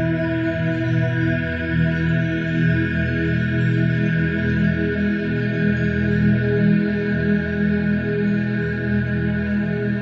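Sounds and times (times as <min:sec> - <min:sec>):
ambient music with held tones: 0:00.0 - 0:10.0.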